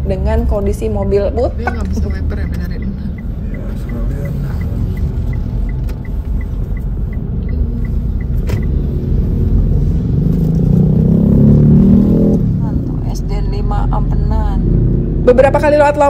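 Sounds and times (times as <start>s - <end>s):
car engine and road rumble: 0.0s - 16.0s
turn signal ticking: 0.1s - 9.8s.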